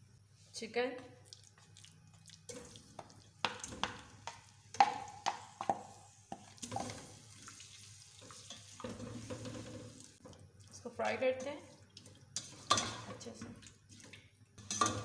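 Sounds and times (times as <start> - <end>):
faint frying sizzle: 1.3 - 15.0
bowl and spatula tapping pot: 3.0 - 7.0.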